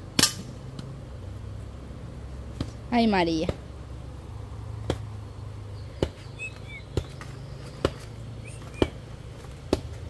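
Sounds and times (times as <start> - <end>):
faint bird chirps: 5.7 - 9.0.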